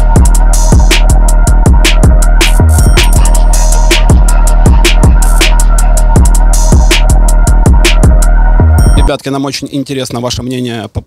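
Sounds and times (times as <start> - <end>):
hi-hat ticks: 0.0 - 8.2
deep steady bass: 0.0 - 9.1
kick drum beat: 0.0 - 9.1.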